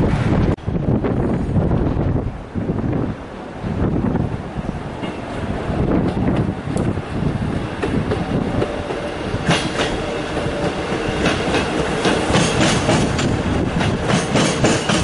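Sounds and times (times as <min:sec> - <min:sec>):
train rumbling past: 0:00.0 - 0:15.0
train wheels clicking over rail joints: 0:04.9 - 0:15.0.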